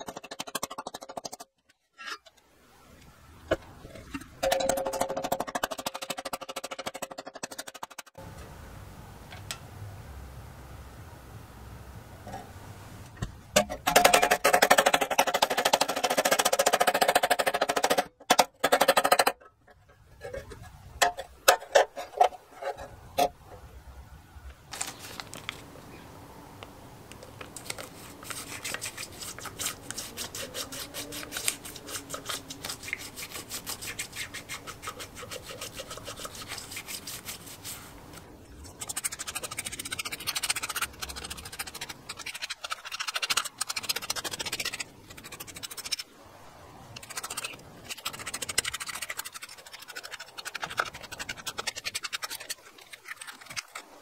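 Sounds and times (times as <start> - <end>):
knife scratching on masking tape: 27.6 - 46.1, 46.9 - 54.0.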